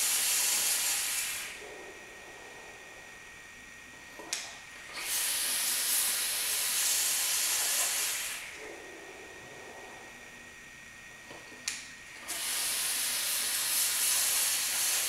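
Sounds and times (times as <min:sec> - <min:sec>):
vape coils hissing: 0:12.2 - 0:15.0.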